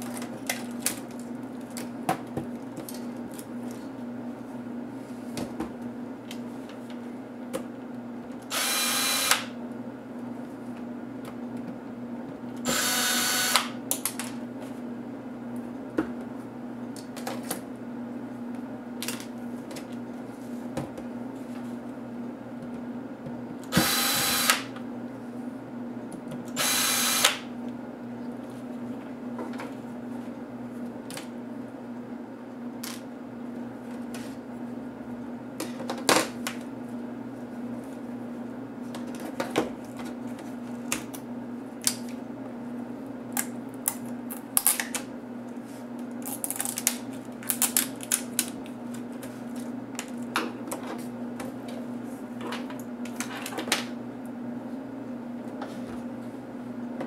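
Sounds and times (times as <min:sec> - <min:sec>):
small motor whirring: 0:08.5 - 0:09.5, 0:12.6 - 0:13.7, 0:23.7 - 0:24.6, 0:26.6 - 0:27.4.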